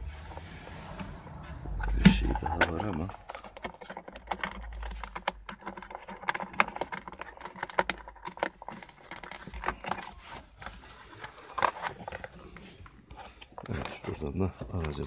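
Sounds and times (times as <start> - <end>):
hands clicking plastic casing: 3.4 - 15.0.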